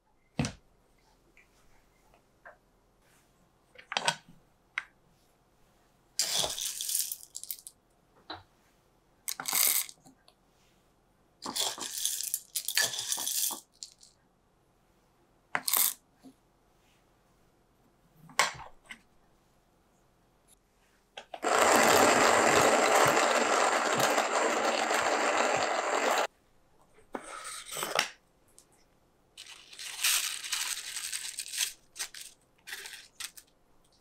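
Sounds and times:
coffee beans rattling: 6.2 - 7.7, 11.5 - 14.1, 21.4 - 26.3, 29.4 - 33.5.

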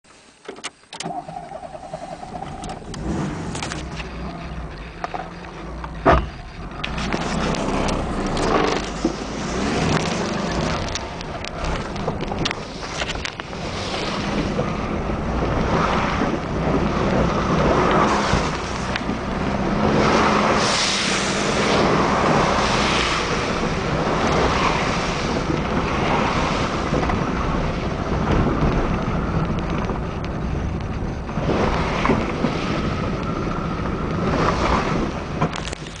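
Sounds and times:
car engine running under load: 0.3 - 36.0.

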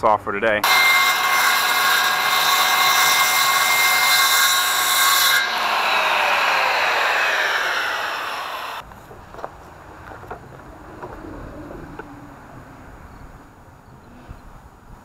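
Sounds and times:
circular saw cutting plastic pipe: 0.6 - 8.8
saw blade winding down: 0.6 - 8.8.

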